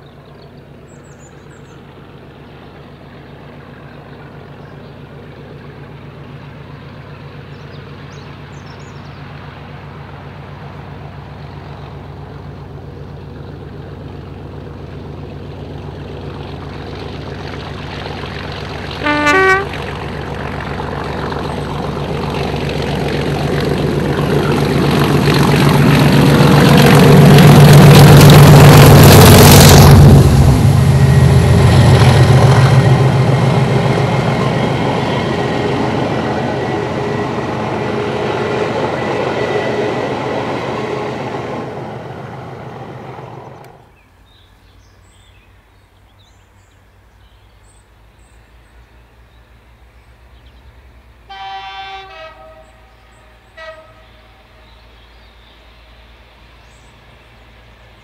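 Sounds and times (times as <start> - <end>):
train rolling noise: 0.0 - 44.0
diesel locomotive engine: 0.0 - 58.0
train horn blast: 18.9 - 20.1, 27.0 - 42.6, 51.3 - 54.6.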